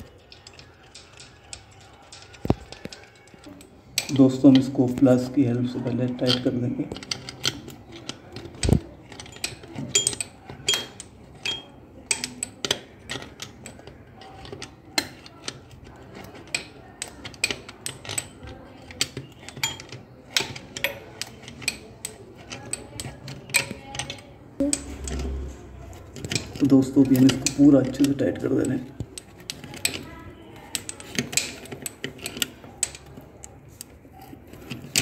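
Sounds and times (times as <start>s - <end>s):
pliers clicking on metal nut: 6.1s - 25.3s.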